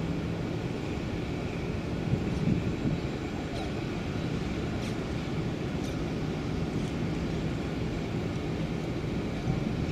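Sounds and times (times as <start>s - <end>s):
diesel engine droning: 0.0s - 9.9s.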